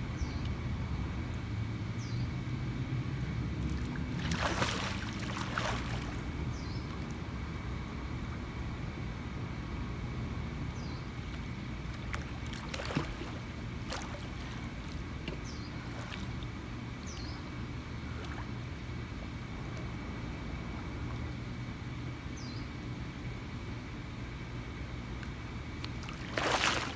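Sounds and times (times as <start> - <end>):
steady low rumble: 0.0 - 26.9
pool water splashing and dripping: 3.6 - 7.4, 11.2 - 21.4, 25.2 - 26.9.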